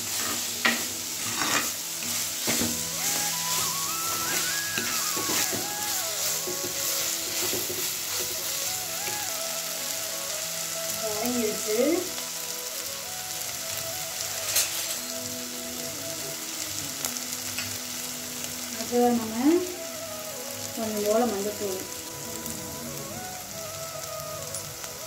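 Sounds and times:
steel spoon stirring in pot: 0.0 - 8.6
onions sizzling in hot oil: 0.0 - 25.0.

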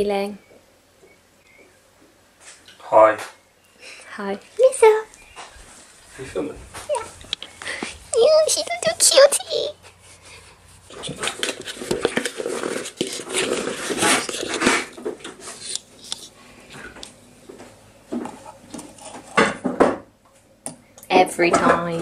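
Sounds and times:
plastic scoop scraping in tub: 10.8 - 15.8.

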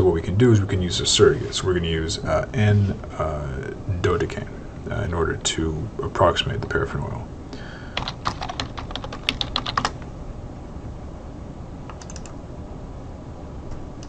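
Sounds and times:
computer keyboard typing: 8.0 - 10.0, 11.9 - 12.4.

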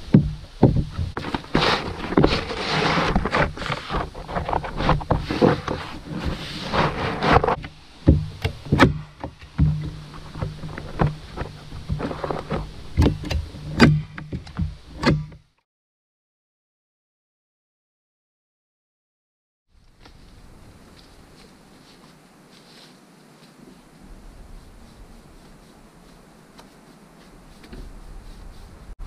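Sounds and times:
roofing roll dragging rustle: 0.0 - 15.0, 19.7 - 29.0
hand tool clicks and knocks: 8.1 - 15.5.

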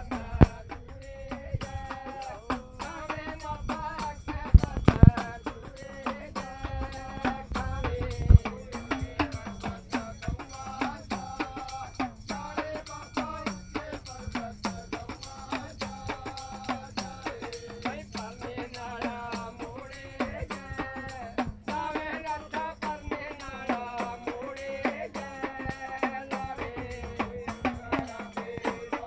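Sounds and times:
small hourglass drum beaten: 0.0 - 29.0
loud drum thumps: 4.0 - 5.4.

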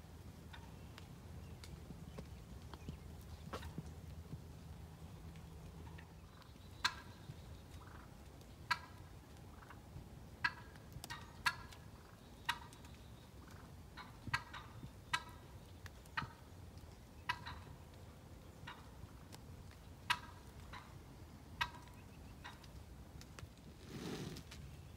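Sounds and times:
turkey calling: 0.5 - 0.8, 5.8 - 9.8, 10.4 - 16.5, 17.2 - 17.8, 18.6 - 19.3, 20.0 - 21.0, 21.6 - 22.8.

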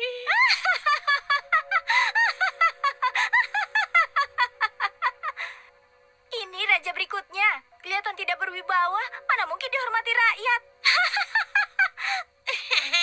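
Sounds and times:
woman laughing high-pitched: 0.0 - 5.4, 10.8 - 13.0
faint steady tone: 0.0 - 13.0.

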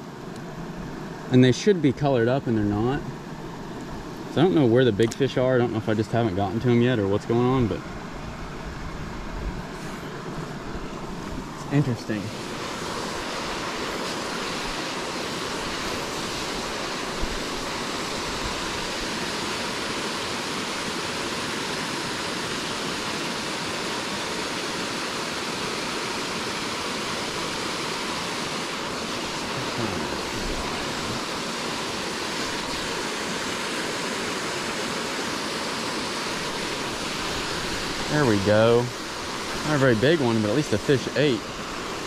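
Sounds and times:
waterfall rushing into a pool: 11.7 - 42.0.

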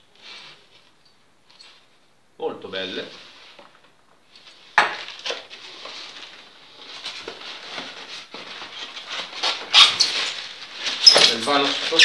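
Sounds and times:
loud crinkle: 5.0 - 12.0.

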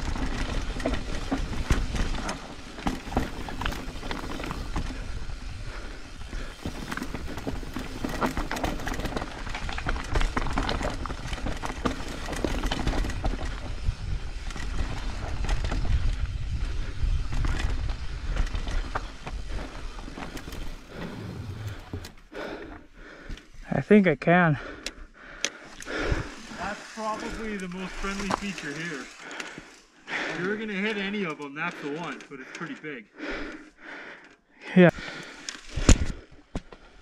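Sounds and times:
tyres crunching over stones: 0.0 - 5.1, 6.2 - 15.9, 25.6 - 31.9
bike rattling and knocking: 0.0 - 22.6, 24.6 - 32.2
bike rolling on wooden planks: 0.0 - 23.6, 24.6 - 32.2
wind buffeting microphone: 12.9 - 20.1.

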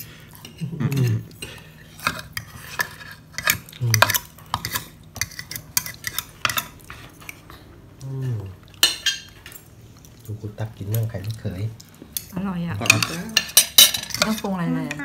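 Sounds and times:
cutlery clinking on plates: 12.2 - 14.5.

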